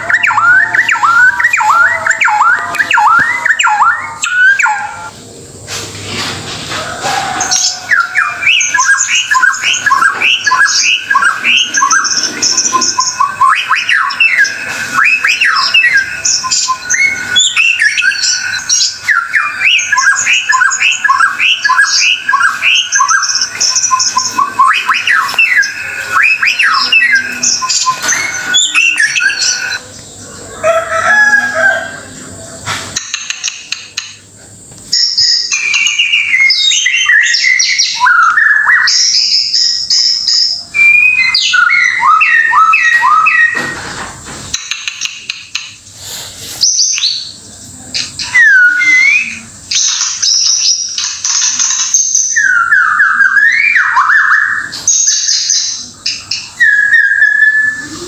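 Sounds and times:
bird singing whistled song: 0.0s - 5.2s, 7.4s - 29.8s, 35.1s - 43.8s, 48.1s - 58.0s.

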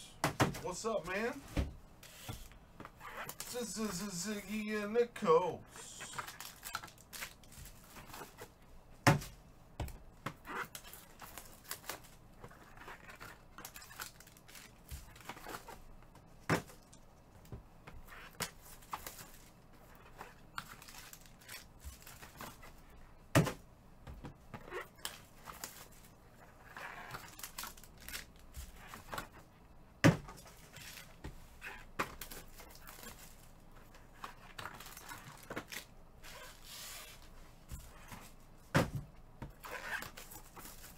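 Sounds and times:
foil wrappers crinkling and tearing: 5.8s - 8.5s, 10.6s - 15.9s, 18.1s - 22.7s, 24.8s - 29.3s, 32.2s - 37.3s, 39.6s - 40.9s
cards and boxes handled: 5.8s - 29.5s, 30.1s - 40.9s.

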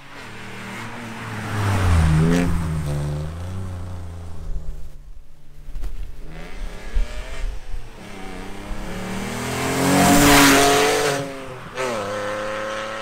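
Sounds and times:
car accelerating past: 0.2s - 4.9s, 6.3s - 13.0s.

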